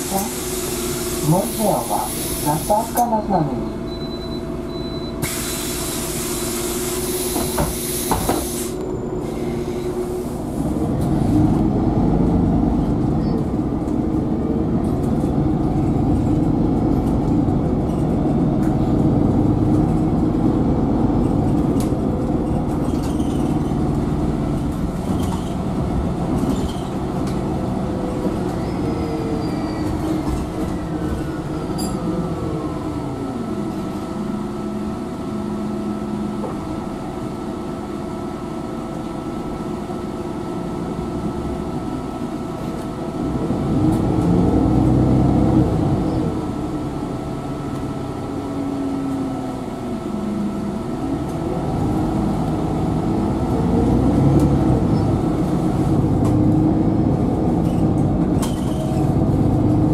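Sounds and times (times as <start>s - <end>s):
bus doors hissing air: 0.0s - 3.1s, 5.1s - 10.8s
bus engine running: 0.0s - 59.9s
road noise: 0.0s - 59.9s.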